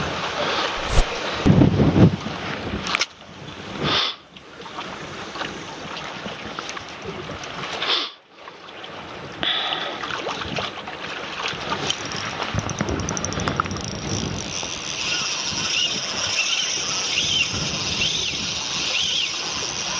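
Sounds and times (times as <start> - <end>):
wind on microphone: 0.8 - 3.9
sea waves: 4.5 - 12.6.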